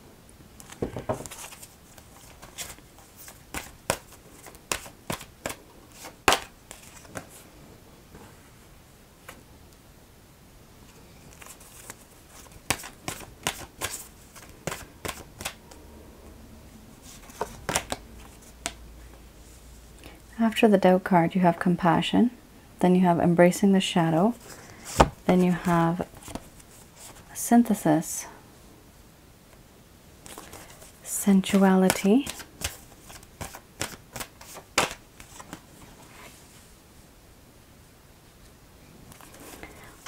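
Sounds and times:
cards being shuffled: 0.6s - 7.4s, 11.3s - 15.6s, 17.0s - 18.8s, 24.4s - 27.3s, 30.2s - 36.3s.

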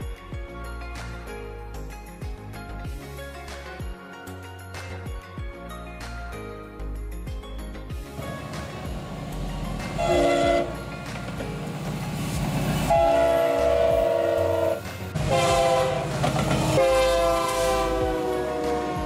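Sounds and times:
diesel locomotive engine: 8.0s - 19.0s
train air horn blasts: 10.0s - 10.8s, 12.9s - 19.0s.

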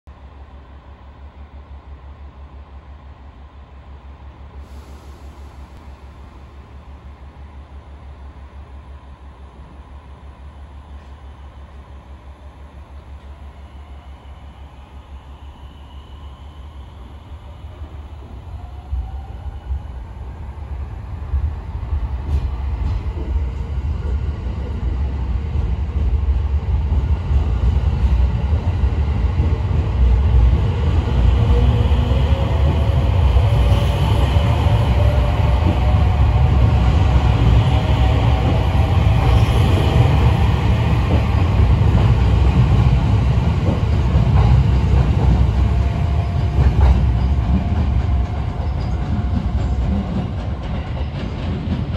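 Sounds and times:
train wheels rumbling on rails: 15.2s - 51.9s.

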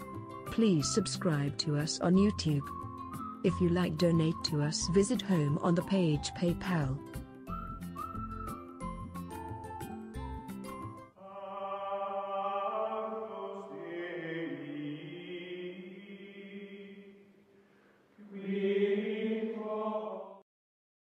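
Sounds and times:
choir-like chanting music: 11.2s - 17.3s, 18.2s - 20.4s.

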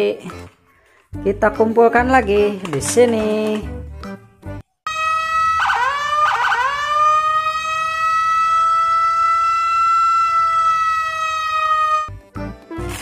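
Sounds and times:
police siren: 4.9s - 12.2s.

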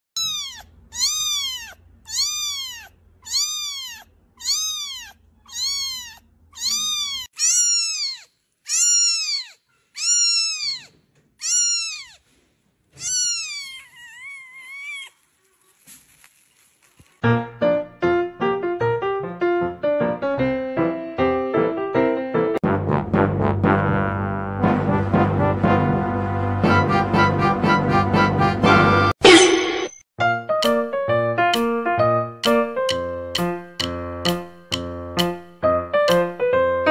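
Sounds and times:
kittens mewing: 0.2s - 12.3s, 12.9s - 15.8s.

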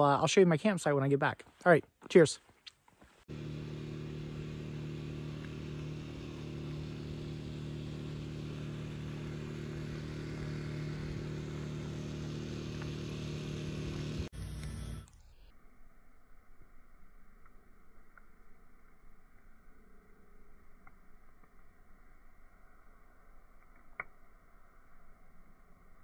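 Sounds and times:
engine humming steadily: 3.3s - 15.2s.

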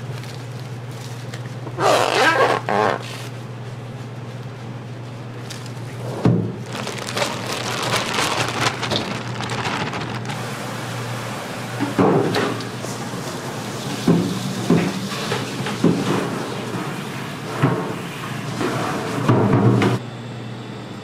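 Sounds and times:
plastic film crinkling: 0.0s - 3.3s, 5.4s - 5.9s, 6.6s - 10.6s
low kitchen hum: 0.0s - 21.0s
cling wrap squeaking off roll: 1.6s - 3.3s, 6.6s - 10.6s.

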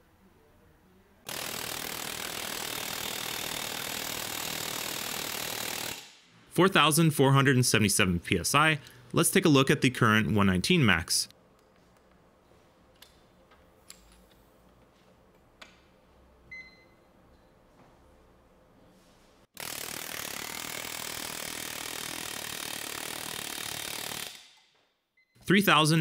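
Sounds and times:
air hammer running: 1.3s - 6.3s, 19.6s - 24.6s.

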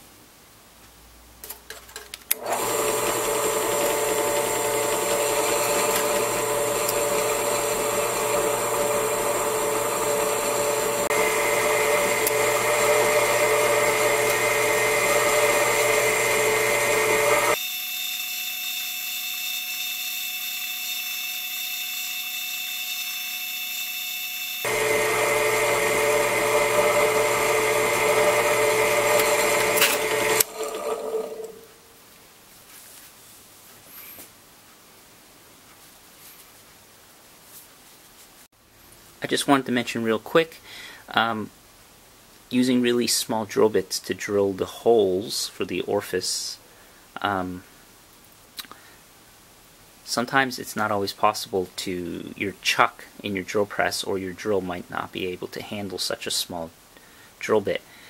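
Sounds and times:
drill press drilling into steel pipe: 2.3s - 31.6s.

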